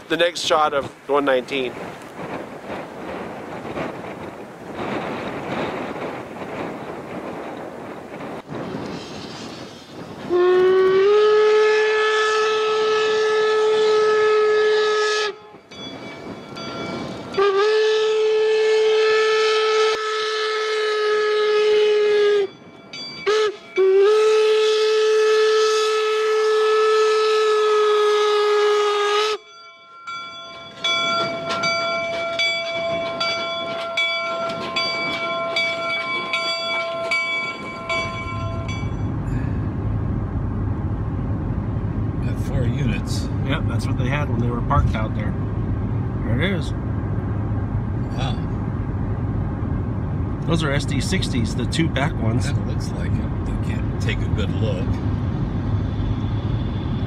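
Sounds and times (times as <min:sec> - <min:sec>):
steam locomotive whistle: 0:10.2 - 0:15.6, 0:17.3 - 0:22.6, 0:23.2 - 0:29.5
locomotive bell ringing: 0:15.3 - 0:17.9, 0:22.3 - 0:24.1, 0:29.3 - 0:39.8.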